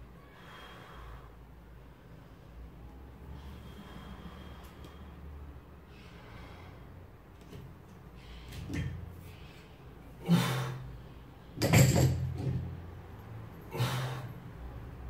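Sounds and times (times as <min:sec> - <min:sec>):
barbell knock: 0:11.6 - 0:12.7.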